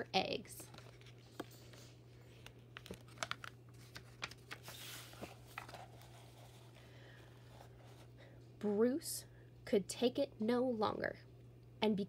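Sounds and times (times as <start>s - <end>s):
faint steady hum: 0.0s - 12.0s
paper rustling: 0.6s - 6.8s
page swishing: 3.8s - 6.7s.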